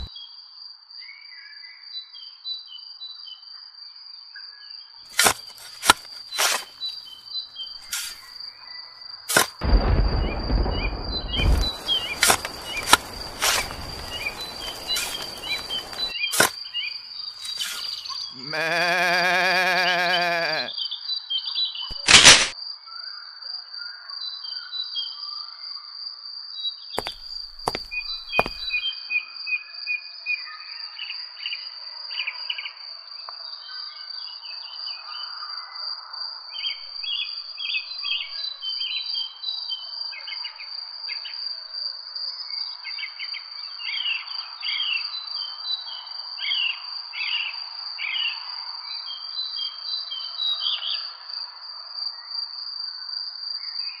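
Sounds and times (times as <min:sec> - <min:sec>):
small birds chirping: 0:09.9 - 0:20.7, 0:27.0 - 0:28.8.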